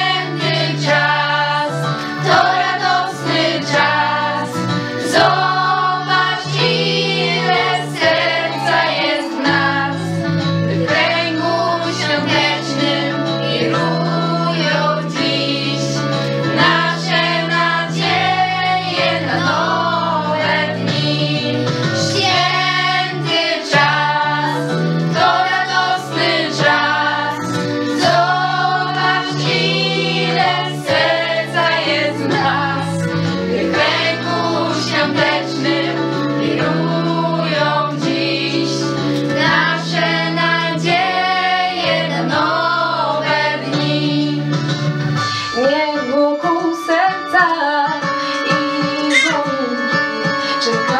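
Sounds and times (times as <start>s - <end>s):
girls singing together: 0.0s - 44.4s, 48.5s - 50.9s.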